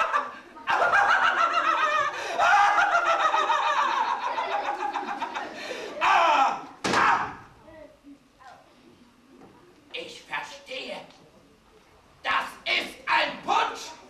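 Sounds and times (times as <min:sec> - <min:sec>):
high-pitched puppet laughter: 0:00.0 - 0:05.5.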